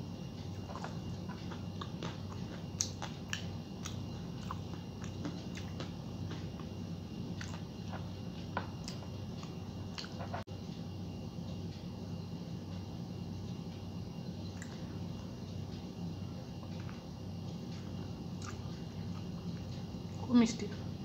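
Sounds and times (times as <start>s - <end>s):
steady low hum: 0.0s - 21.0s
wet chewing and lip smacks: 0.5s - 6.8s, 7.4s - 10.4s, 17.7s - 19.8s.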